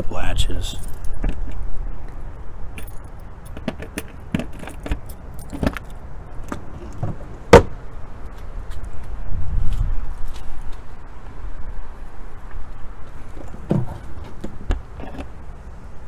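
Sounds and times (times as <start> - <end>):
keys jangling on a key ring: 0.7 - 1.2.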